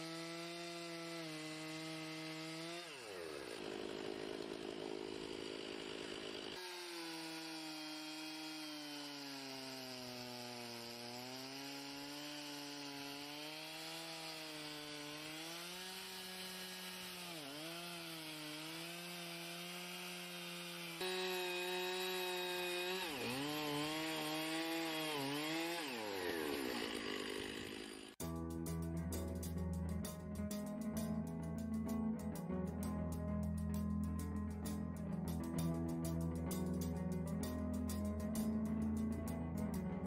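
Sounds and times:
chainsaw ripping a log: 0.0s - 28.2s.

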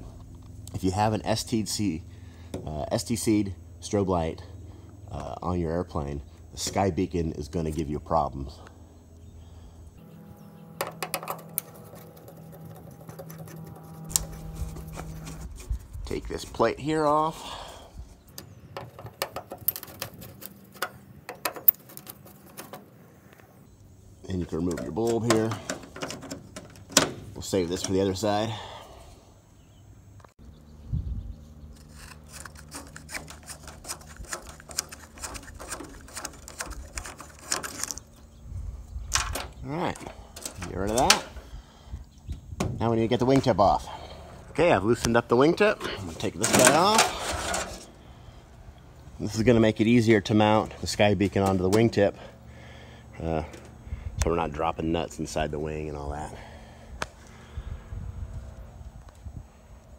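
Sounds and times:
steady low hum: 0.0s - 59.9s
small clicks and rattles: 31.9s - 38.1s.

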